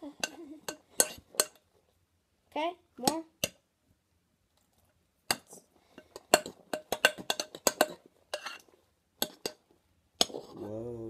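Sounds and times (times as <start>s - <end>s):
spoon stirring thick slime: 0.0s - 2.0s, 4.6s - 10.8s
spoon clinking against bowl: 5.3s - 8.6s.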